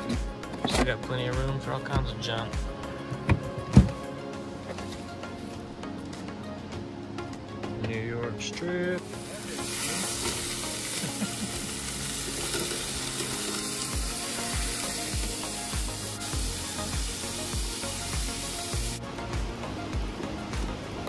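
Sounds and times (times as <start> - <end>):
background music with bass beat: 0.0 - 21.0
steaks sizzling in a frying pan: 9.1 - 19.0.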